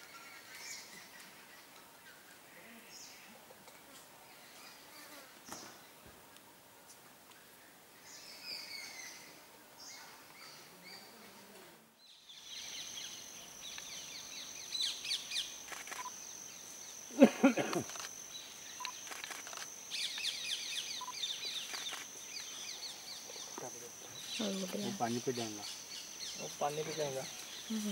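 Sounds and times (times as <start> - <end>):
bird chirps: 12.1 - 27.9
high-pitched insect drone: 12.3 - 27.9.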